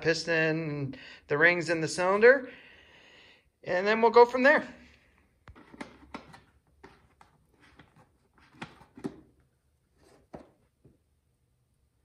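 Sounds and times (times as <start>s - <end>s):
plastic cover handled: 5.4s - 11.0s.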